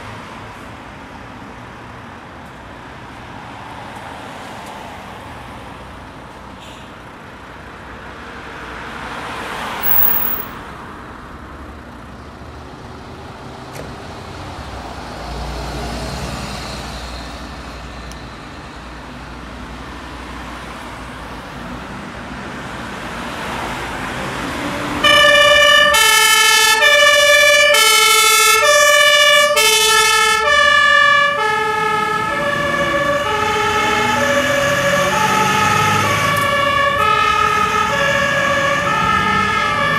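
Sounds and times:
traffic noise: 0.0s - 39.9s
two-tone siren: 9.8s - 10.5s, 25.0s - 39.9s.

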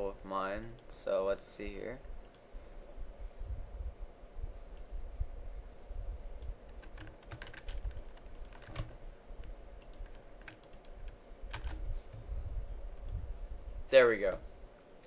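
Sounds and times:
faint steady hum: 0.0s - 15.0s
keyboard keys and mouse clicking: 2.2s - 2.4s, 6.4s - 12.2s, 12.9s - 13.2s.

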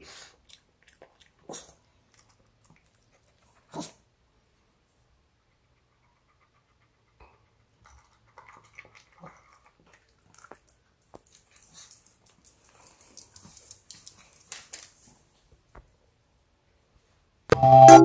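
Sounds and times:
dog crunching dry kibble: 8.4s - 15.2s.

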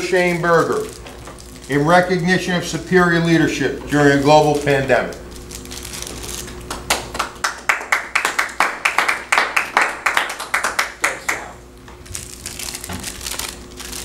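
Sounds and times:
hand clapping: 6.7s - 11.5s.

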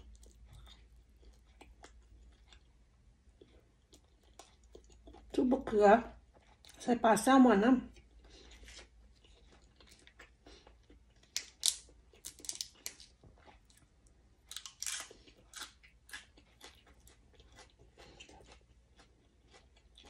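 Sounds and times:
chewing leafy greens: 7.8s - 11.4s, 14.5s - 20.0s.

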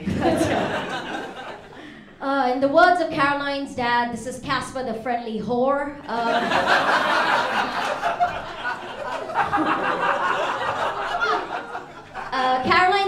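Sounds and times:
audience laughing: 0.0s - 1.9s, 6.1s - 12.4s.

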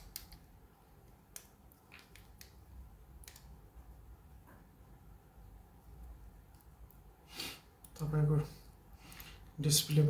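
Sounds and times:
small plastic clicks: 0.0s - 0.5s, 1.1s - 2.6s, 3.2s - 3.6s.

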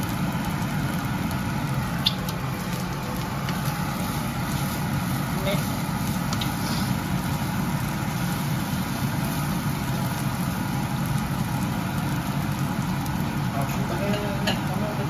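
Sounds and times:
onion and bacon frying in pan: 0.0s - 15.0s.

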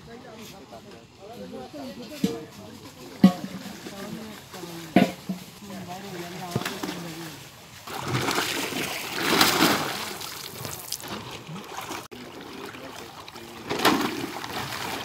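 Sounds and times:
water splashing and sloshing: 2.0s - 15.0s
fish thrashing in water: 6.5s - 15.0s.

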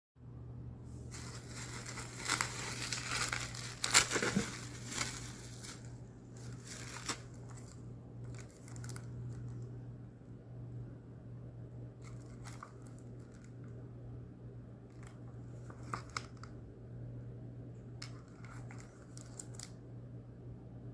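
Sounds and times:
steady low hum: 0.2s - 20.9s
bubble wrap crinkling: 0.9s - 9.7s, 12.0s - 13.7s, 18.0s - 19.8s
sharp crackle: 1.1s - 9.4s.

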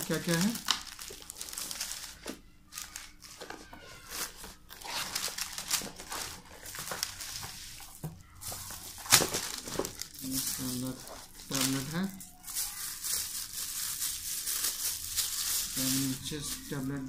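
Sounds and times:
cardboard and plastic rustling: 0.0s - 17.0s.

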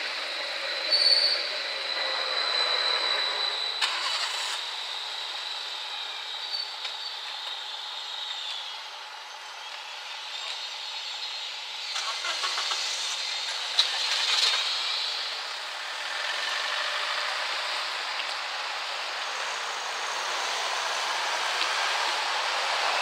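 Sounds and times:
cars driving over crossing: 10.2s - 23.0s.

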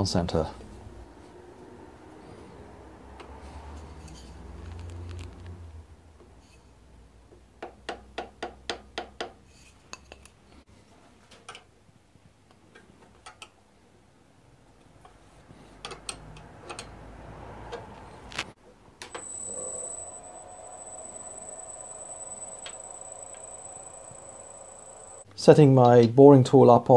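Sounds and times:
hammer tapping wood block: 7.6s - 9.4s
lathe whining: 19.0s - 25.3s.

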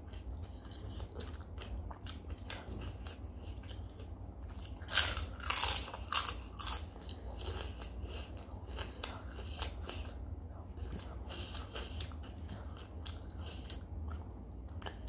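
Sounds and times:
soft chewing: 0.0s - 15.0s
loud crunching of crisp food: 0.1s - 10.2s.

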